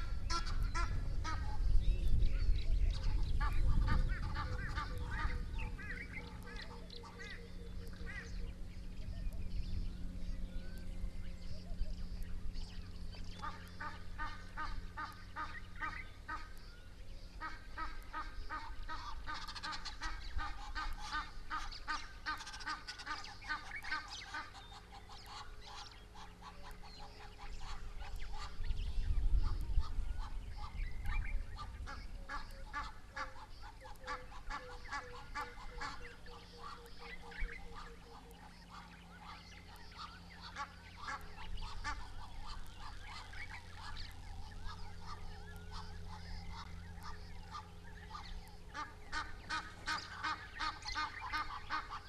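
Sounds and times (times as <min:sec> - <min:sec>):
low rumble: 0:00.0 - 0:22.6, 0:23.2 - 0:52.0
birds honking: 0:00.0 - 0:52.0.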